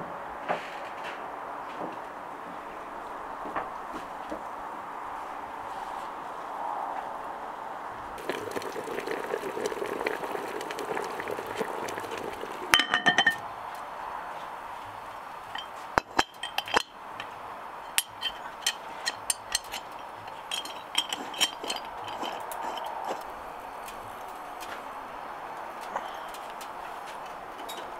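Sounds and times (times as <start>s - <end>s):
utensils and dishes clinking: 8.2s - 13.4s, 15.5s - 17.3s, 17.9s - 23.3s, 27.6s - 27.9s.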